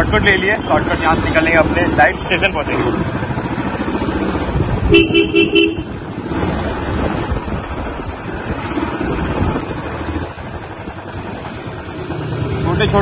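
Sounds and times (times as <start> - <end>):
motorcycle engine running: 0.0 - 13.0
wind rushing over microphone: 4.3 - 11.0.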